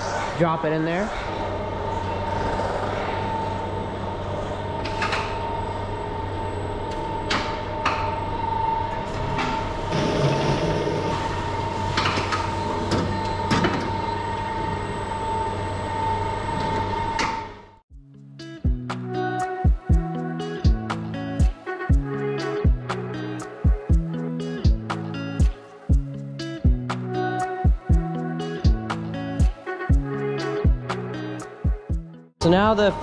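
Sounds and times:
electric drive whine and hum: 0:03.0 - 0:17.8.

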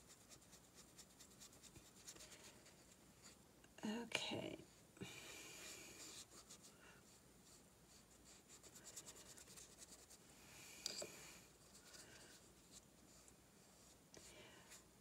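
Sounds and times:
paintbrush scratching on paper: 0:00.0 - 0:03.4, 0:05.6 - 0:10.2.

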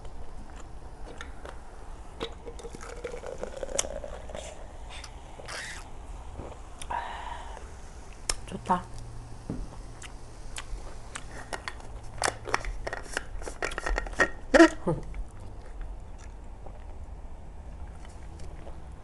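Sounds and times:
drinking through a straw: 0:02.2 - 0:07.8.

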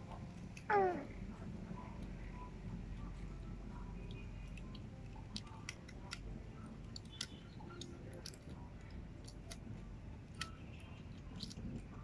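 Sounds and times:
plastic puzzle cube clicking: 0:04.0 - 0:11.9.

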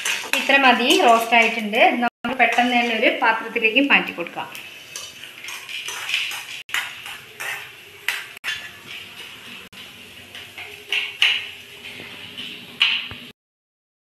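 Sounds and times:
metallic scrapes and clatters: 0:00.0 - 0:01.6, 0:04.9 - 0:13.0.

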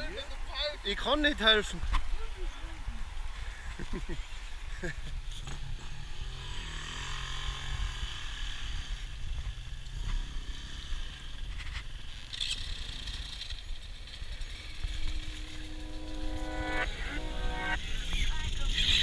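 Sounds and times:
dirt bike engines low revs: 0:05.3 - 0:15.8.

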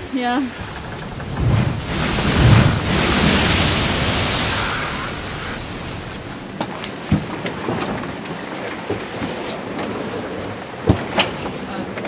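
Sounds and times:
wave breaking over boat: 0:00.0 - 0:12.0
low thud: 0:00.5 - 0:07.8.

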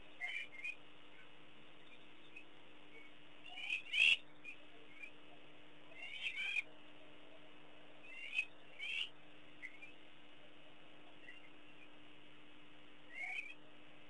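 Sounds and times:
faint steady hum: 0:00.0 - 0:14.0
short chirping animal calls: 0:00.2 - 0:05.2, 0:05.9 - 0:06.7, 0:08.0 - 0:10.0, 0:13.1 - 0:13.6.

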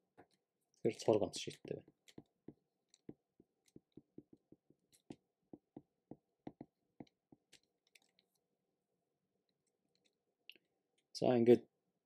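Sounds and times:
stylus tapping on tablet screen: 0:01.4 - 0:07.7.

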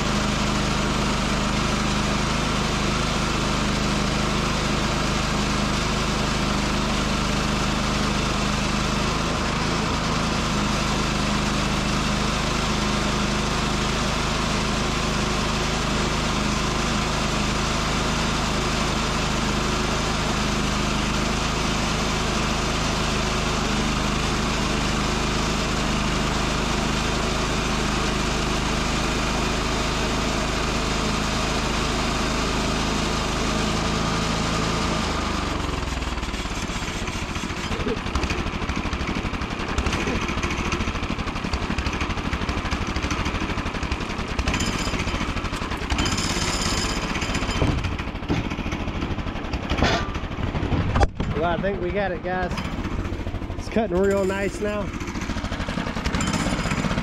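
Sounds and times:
sawmill engine running: 0:00.0 - 0:57.0
saw blade cutting log: 0:32.6 - 0:41.0, 0:43.8 - 0:48.9, 0:52.0 - 0:57.0.

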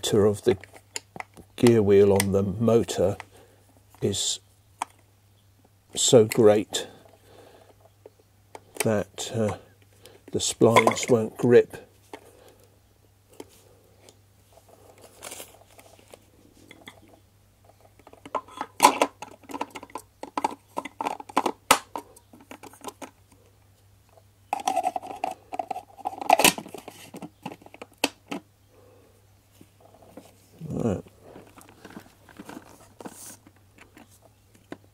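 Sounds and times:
faint steady hum: 0:00.0 - 0:34.9
plastic parts clicking and clattering: 0:08.5 - 0:11.3, 0:14.5 - 0:23.3, 0:24.1 - 0:28.5, 0:31.2 - 0:34.9.

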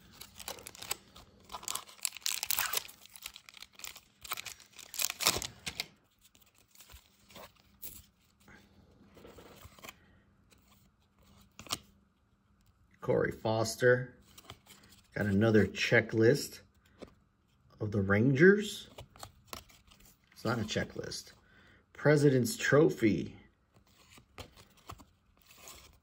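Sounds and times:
foil pack tearing and crinkling: 0:00.0 - 0:05.9
cards rustling and clicking: 0:00.0 - 0:08.4, 0:09.2 - 0:11.9, 0:18.9 - 0:20.7, 0:23.8 - 0:26.0.

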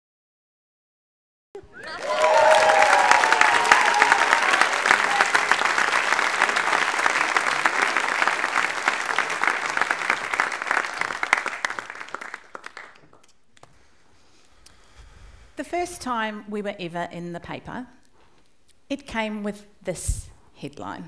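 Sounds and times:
people cheering: 0:01.6 - 0:12.9
audience applauding: 0:01.6 - 0:13.3.

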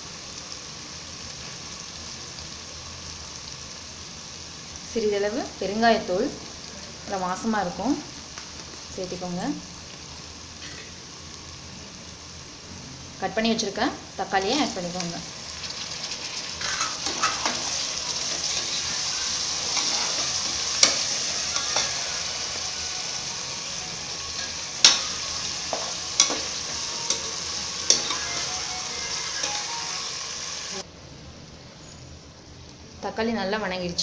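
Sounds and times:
tomatoes sizzling in oil: 0:00.0 - 0:30.9
spoon clinking against pot: 0:24.4 - 0:28.2.

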